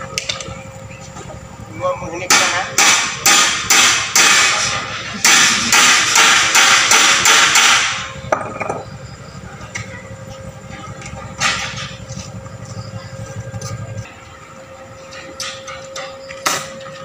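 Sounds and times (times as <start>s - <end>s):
hammer striking steel bars: 2.3s - 8.7s, 15.1s - 17.0s.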